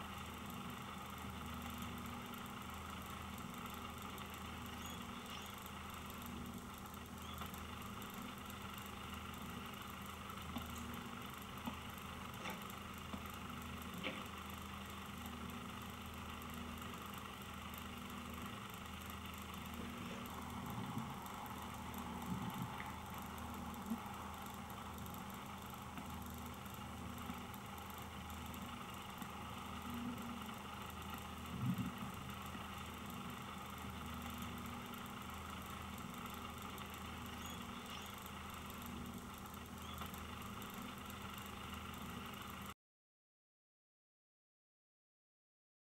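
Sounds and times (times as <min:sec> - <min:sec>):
machine-like hum: 0:00.0 - 0:42.8.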